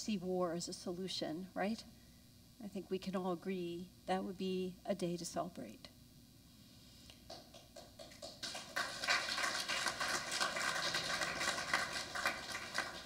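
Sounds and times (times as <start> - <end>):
congregation applauding: 7.3 - 13.0.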